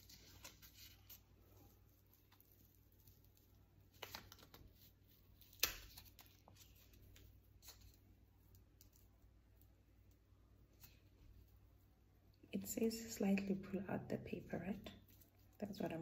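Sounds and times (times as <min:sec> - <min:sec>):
paper rustling: 0:00.0 - 0:08.0.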